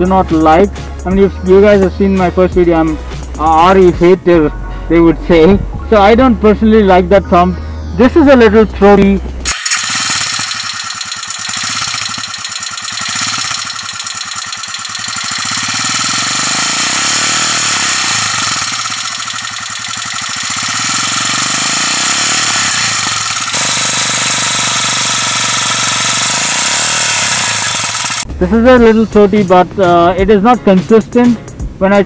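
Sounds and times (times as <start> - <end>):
motorcycle engine pulsing exhaust: 8.0 - 30.6.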